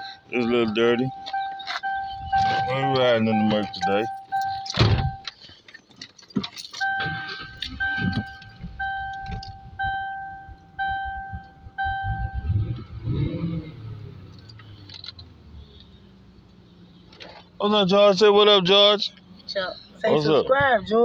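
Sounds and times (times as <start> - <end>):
dashboard warning chime: 0.0 - 5.4, 6.5 - 12.8
keys jangling: 1.2 - 9.6
low rumble: 8.0 - 14.4.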